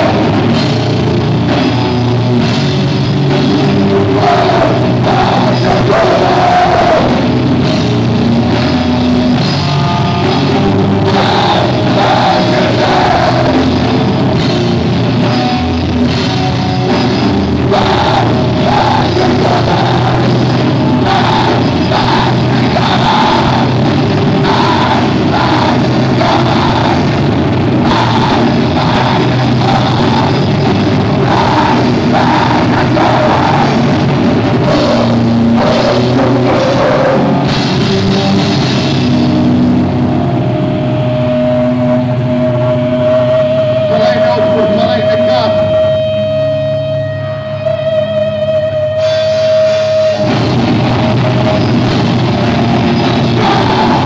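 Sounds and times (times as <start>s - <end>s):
screamo band playing live: 0.0s - 54.0s
screamed vocals: 3.9s - 7.4s, 11.0s - 14.1s, 17.7s - 37.6s, 49.0s - 54.0s.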